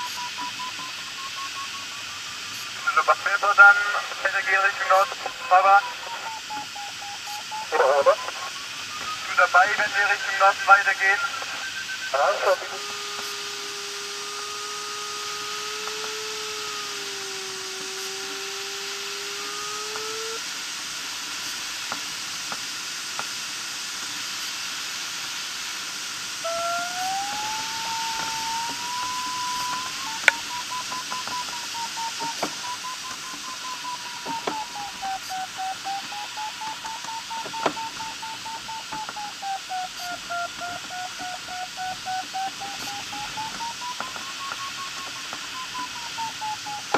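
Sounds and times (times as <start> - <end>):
variometer tone and beeps: 0.0 - 20.4, 26.4 - 46.9
sharp clicks: 26.9 - 46.9.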